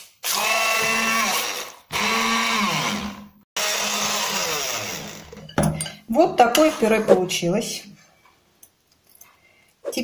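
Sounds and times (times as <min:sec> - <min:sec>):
immersion blender motor whine: 0:00.2 - 0:05.4.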